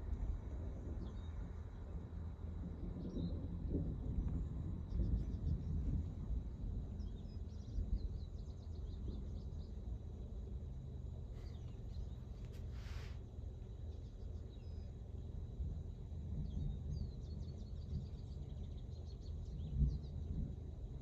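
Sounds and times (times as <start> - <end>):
low steady rumbling: 0.0 - 21.0
small birds chirping: 11.3 - 13.2
brief hiss: 12.4 - 13.3.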